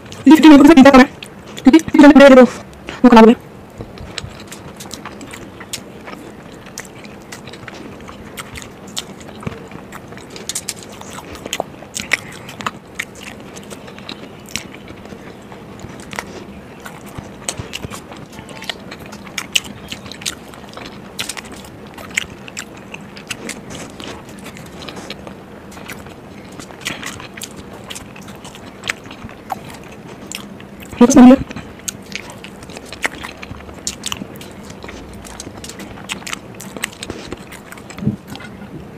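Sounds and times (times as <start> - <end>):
person chewing: 0.0 - 38.9.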